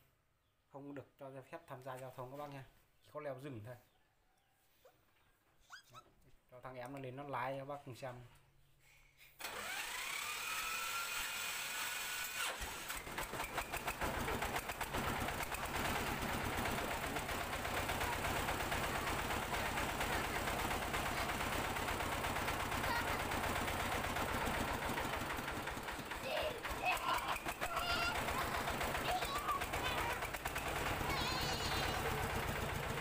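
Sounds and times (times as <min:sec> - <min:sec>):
starter motor whine: 0:09.4 - 0:33.0
diesel engine knocking run: 0:12.9 - 0:33.0.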